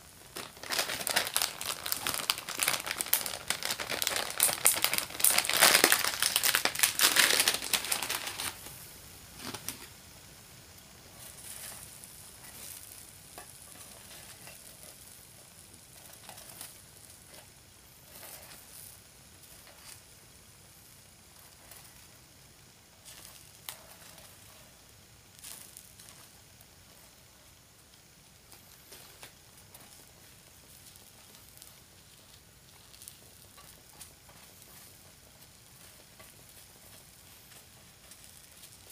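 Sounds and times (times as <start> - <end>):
batter sizzling on hot plate: 0.0 - 38.9
crinkling rustle: 0.2 - 10.0, 11.1 - 20.1, 28.4 - 38.9.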